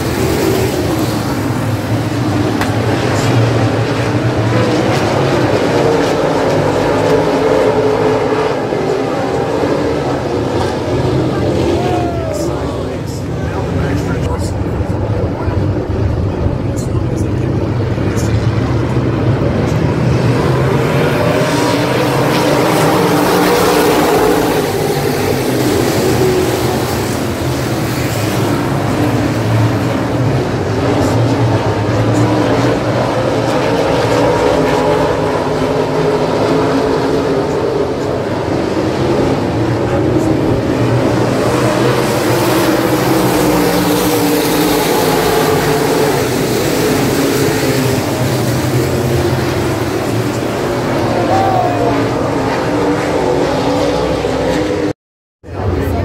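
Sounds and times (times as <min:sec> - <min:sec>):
race car engines droning: 0:00.0 - 0:56.0.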